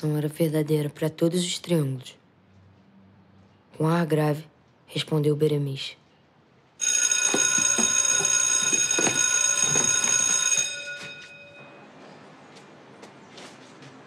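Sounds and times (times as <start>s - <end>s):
school bell ringing: 6.8s - 12.0s.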